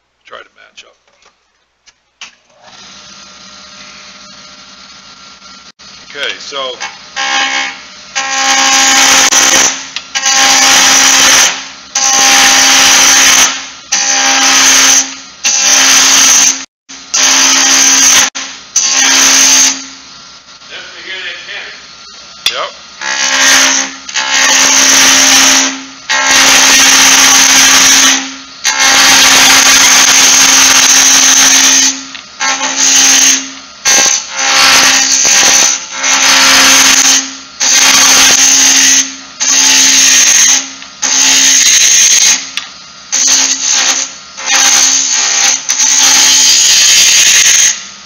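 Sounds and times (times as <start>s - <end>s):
gouge cutting wood on a lathe: 7.2s - 16.6s, 23.0s - 40.5s.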